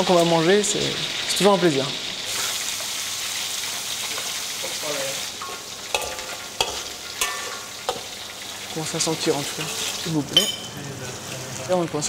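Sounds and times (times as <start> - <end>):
sauce sizzling in a wok: 0.0 - 12.0
metal spatula stirring: 5.4 - 8.2, 9.2 - 11.4
spatula clanking on wok: 5.4 - 8.3, 9.5 - 10.8.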